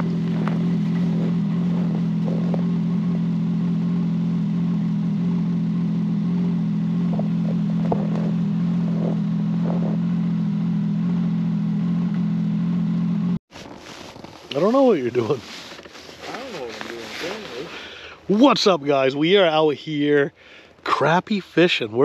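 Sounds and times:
snowmobile engine idling: 0.0s - 22.0s.

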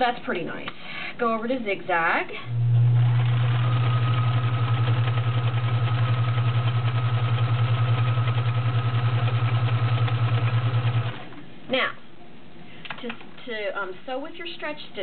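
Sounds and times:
sewing machine stitching: 2.8s - 11.3s.

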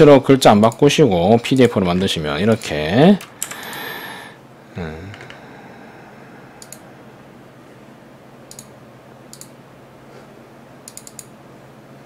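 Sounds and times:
faint low hum: 0.0s - 12.0s
computer mouse clicks: 6.6s - 6.8s, 8.5s - 8.7s, 9.3s - 9.6s, 10.8s - 11.3s.

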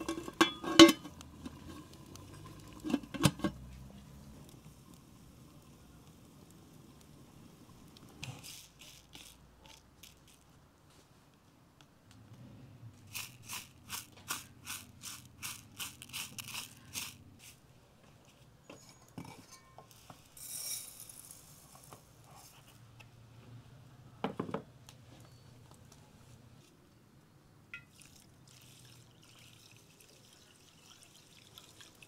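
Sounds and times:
wood fire crackling: 0.0s - 10.6s
rice grains sliding into bowl: 19.9s - 22.5s.

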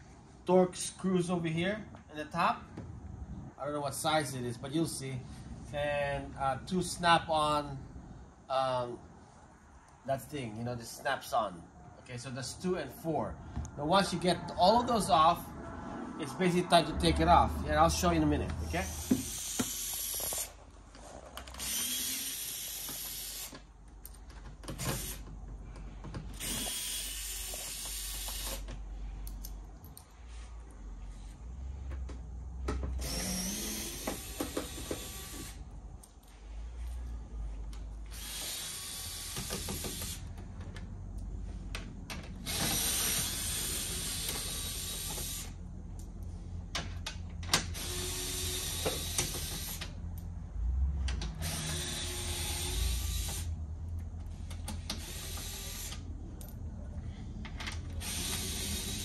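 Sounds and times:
cordless drill running: 21.5s - 23.6s, 26.4s - 28.6s, 33.0s - 35.6s, 38.1s - 40.2s, 42.4s - 45.6s, 47.8s - 49.8s, 51.4s - 53.5s, 54.8s - 56.0s, 58.0s - 59.0s.

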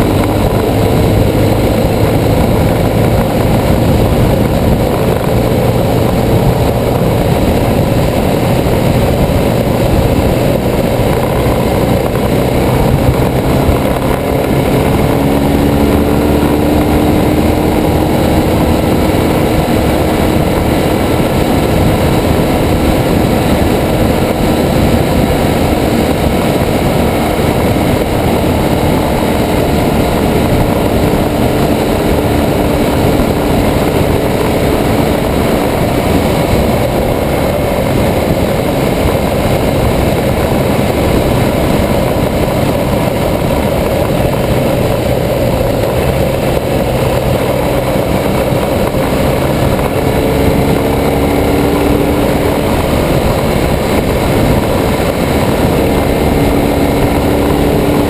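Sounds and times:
motorcycle engine running: 0.0s - 58.0s
wind noise: 0.0s - 58.0s.

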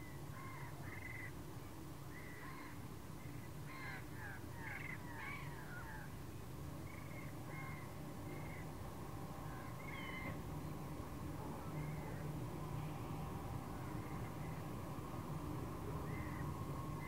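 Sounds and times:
faint low rumble: 6.9s - 17.0s.

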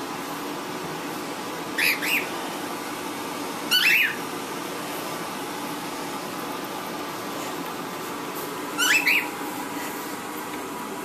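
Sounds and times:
steady background hum: 0.0s - 11.0s
bird chirping: 1.8s - 2.3s, 3.7s - 4.2s, 8.8s - 9.3s.

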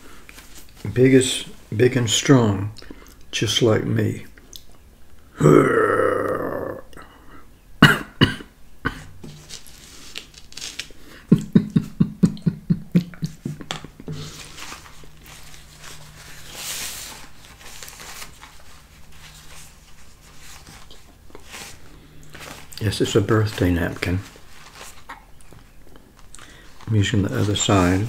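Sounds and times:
paper napkin rustling: 9.2s - 11.3s, 13.3s - 28.0s.

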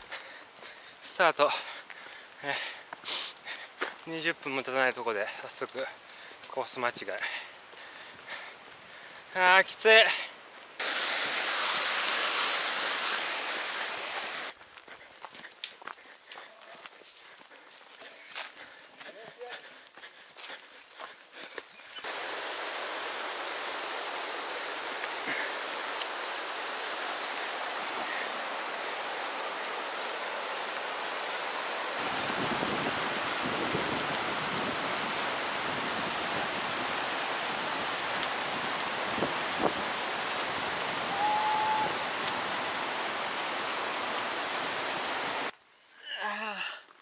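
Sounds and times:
river rapids rushing: 10.8s - 14.5s, 22.0s - 45.5s.

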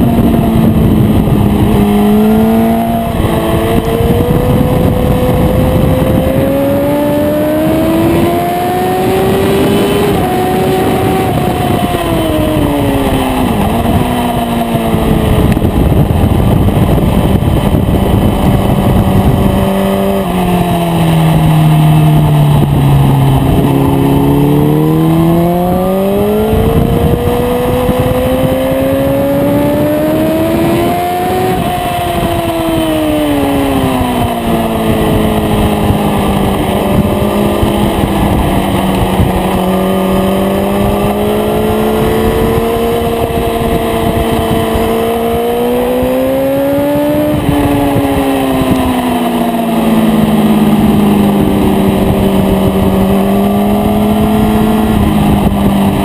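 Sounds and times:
motorcycle engine revving: 0.0s - 56.0s
wind noise: 0.0s - 56.0s.

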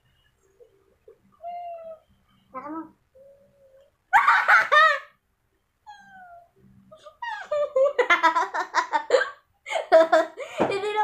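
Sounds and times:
girls laughing: 7.1s - 11.0s.

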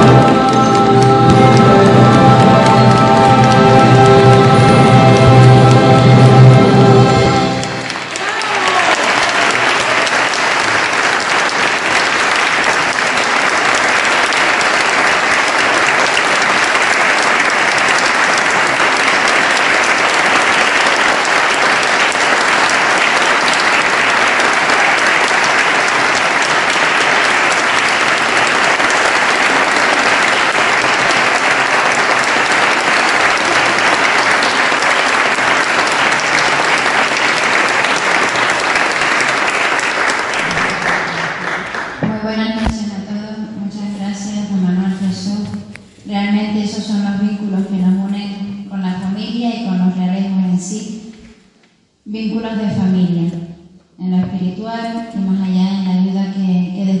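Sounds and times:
audience applauding: 0.0s - 42.2s.

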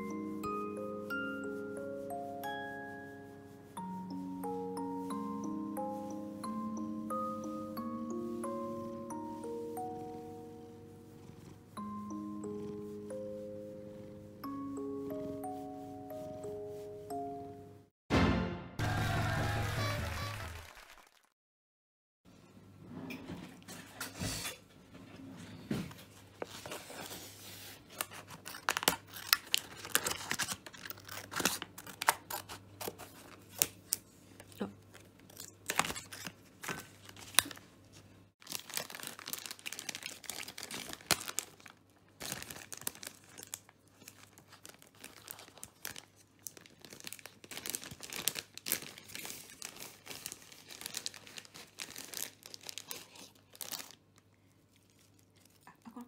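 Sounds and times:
plastic pouches crinkling and tearing: 27.9s - 37.7s, 38.4s - 56.0s.

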